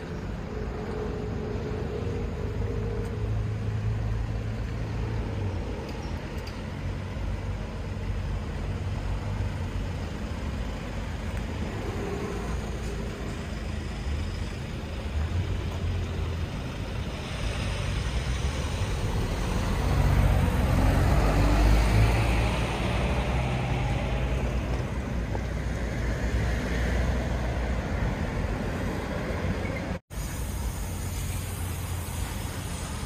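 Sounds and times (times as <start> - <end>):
road traffic rumble: 0.0 - 33.0
vehicle passing: 11.4 - 29.5.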